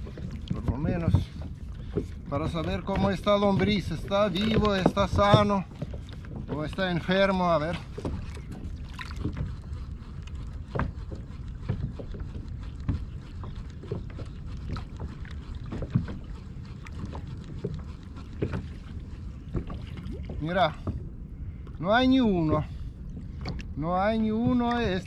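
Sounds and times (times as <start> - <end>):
light knocks and clicks: 0.0 - 6.9
water lapping against a hull: 0.0 - 25.0
wind rumble on microphone: 0.0 - 25.0.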